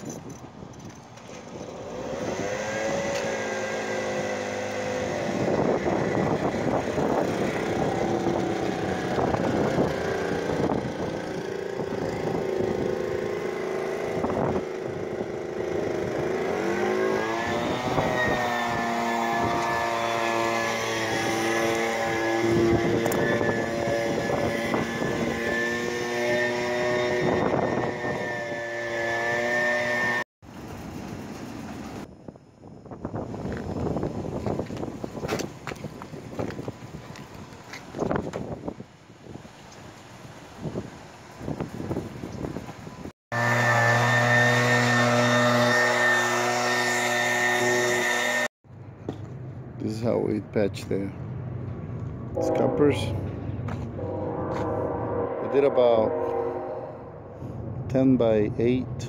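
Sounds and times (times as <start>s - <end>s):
engine running: 0.7s - 32.1s, 39.9s - 50.2s, 50.8s - 58.0s.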